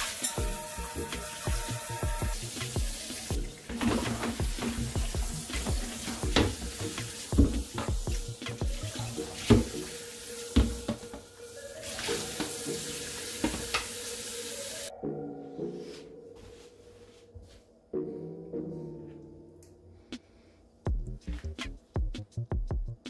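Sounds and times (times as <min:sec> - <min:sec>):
tap water running into sink: 0:00.0 - 0:14.4
background music: 0:00.0 - 0:23.0
container knocking against sink: 0:05.6 - 0:06.7, 0:07.3 - 0:08.2, 0:10.6 - 0:11.2.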